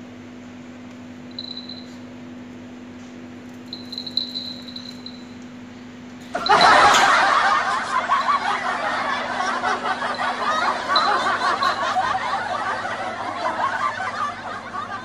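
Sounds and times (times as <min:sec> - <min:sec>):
steady low hum: 0:00.0 - 0:15.0
loud human laughter: 0:06.4 - 0:15.0.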